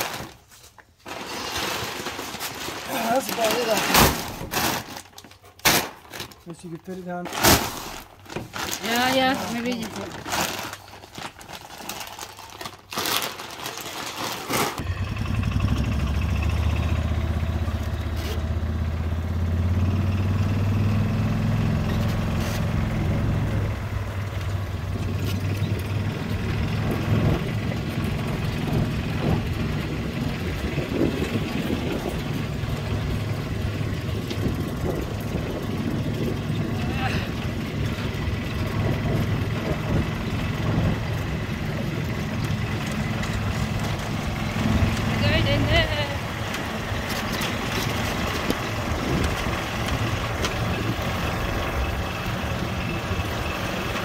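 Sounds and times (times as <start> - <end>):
plastic bags rustling: 0.0 - 14.9.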